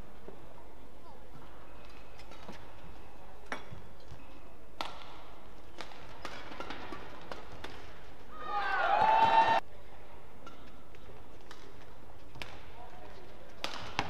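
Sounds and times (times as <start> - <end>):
rackets hitting shuttlecock: 3.4 - 8.2, 10.4 - 14.0.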